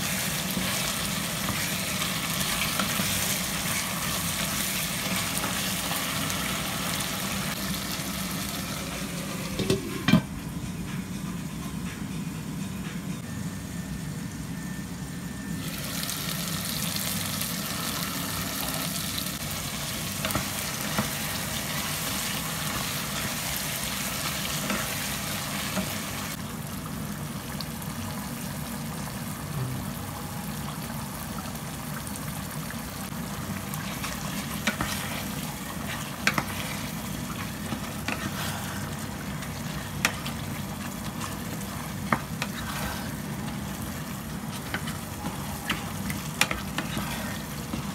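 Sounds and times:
curry sizzling in a pan: 0.0s - 9.8s, 15.6s - 47.9s
spatula knocking and scraping pan: 41.2s - 43.6s, 44.5s - 47.9s.

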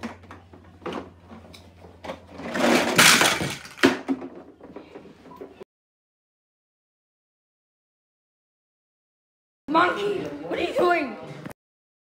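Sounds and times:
plastic blocks clattering onto carpet: 2.3s - 4.6s.

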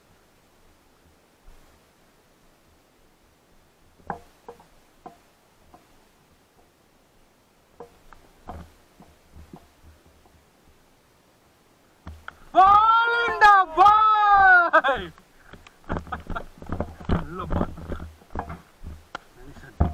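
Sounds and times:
faint knocks and clicks: 4.0s - 6.0s, 7.8s - 10.4s, 15.1s - 19.9s.

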